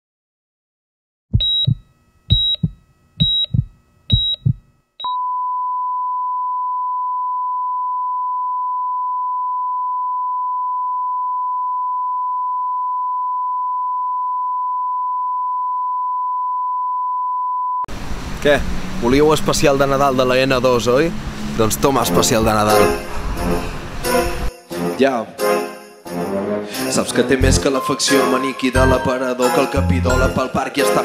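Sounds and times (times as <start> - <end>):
short high beeps: 1.4 - 6.0
steady test tone: 1.4 - 6.5.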